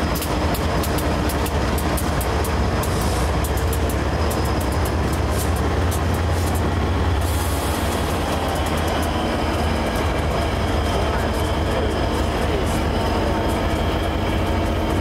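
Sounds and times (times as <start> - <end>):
diesel locomotives rumbling past: 0.0 - 15.0.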